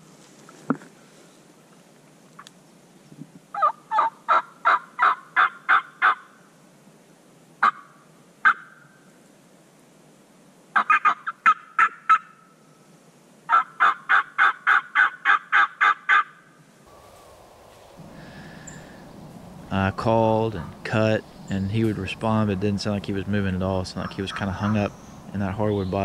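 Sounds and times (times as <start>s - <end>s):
turkey mouth call yelps: 3.6s - 6.2s, 7.6s - 8.8s, 10.8s - 12.4s, 13.5s - 16.3s.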